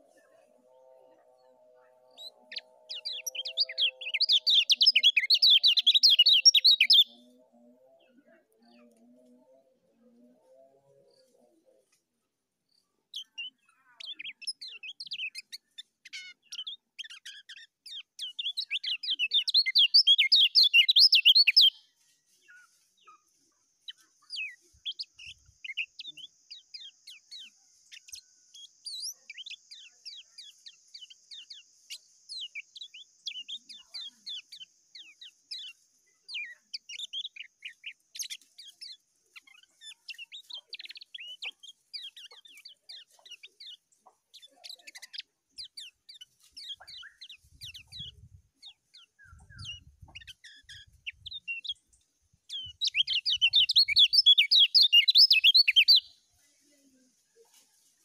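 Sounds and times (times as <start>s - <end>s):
bird chirping rapidly: 2.4s - 7.1s, 18.2s - 21.8s, 52.5s - 56.1s.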